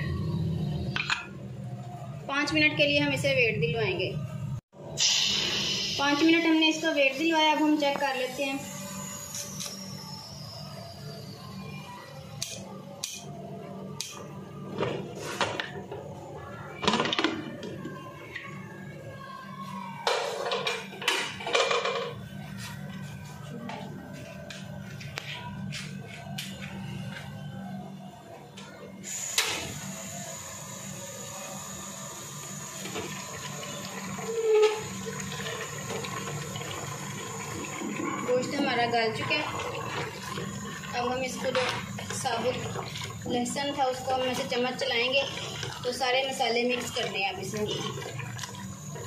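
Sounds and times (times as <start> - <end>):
gravy simmering and bubbling: 32.8 - 49.0.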